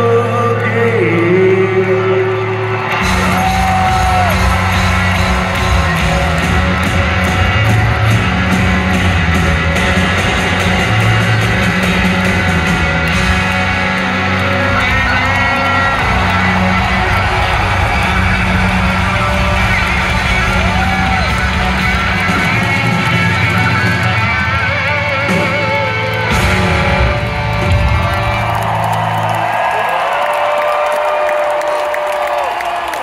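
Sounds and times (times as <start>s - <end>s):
live rock band playing: 0.0s - 29.8s.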